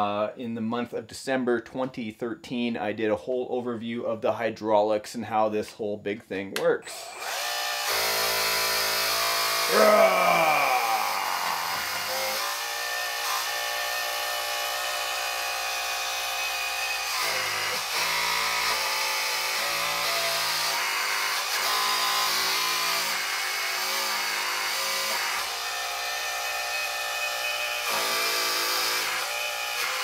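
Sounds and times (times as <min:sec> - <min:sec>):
hydraulic pump whining: 0:09.4 - 0:12.6.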